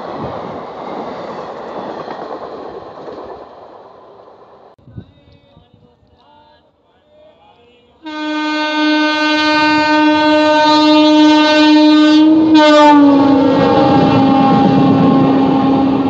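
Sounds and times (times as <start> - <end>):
train coaches clattering: 0.0 - 4.8
locomotive horn blaring: 8.0 - 16.0.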